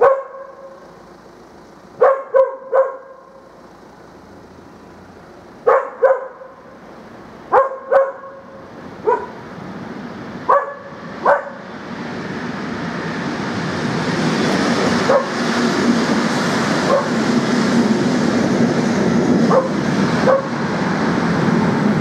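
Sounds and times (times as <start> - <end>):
dog barking: 0.0 - 0.8, 2.0 - 3.3, 5.6 - 6.7, 7.5 - 9.4, 10.5 - 11.7, 15.0 - 15.4, 16.9 - 17.2, 19.4 - 20.6
train rumble: 0.0 - 22.0.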